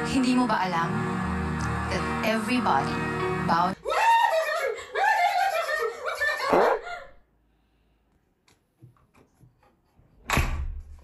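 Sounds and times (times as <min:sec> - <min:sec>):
background music: 0:00.0 - 0:04.2.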